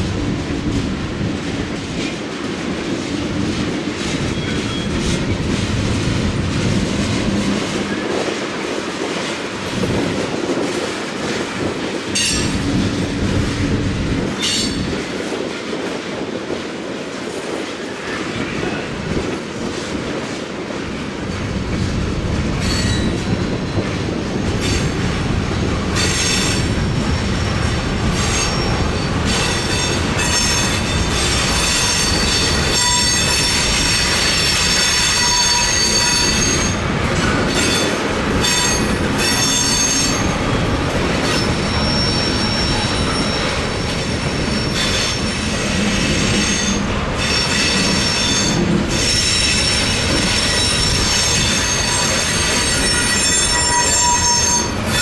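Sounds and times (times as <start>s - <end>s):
steel wheels rumbling on rails: 0.0s - 55.0s
high-pitched wheel squeal: 41.6s - 43.6s, 46.5s - 55.0s.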